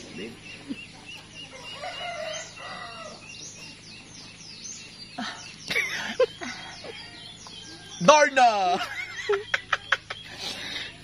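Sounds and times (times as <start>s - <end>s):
small bird chirping: 0.0s - 11.0s.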